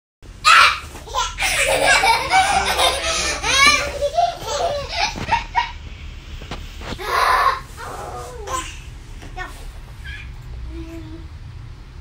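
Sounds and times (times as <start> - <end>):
young children laughing: 0.5 - 5.8.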